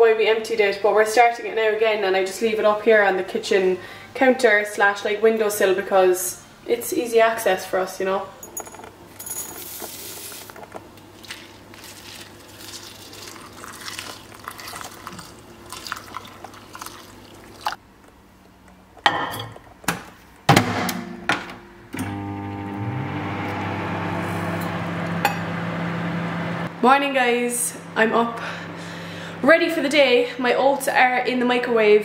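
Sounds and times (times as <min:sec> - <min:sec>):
microwave humming: 0:21.0 - 0:30.6.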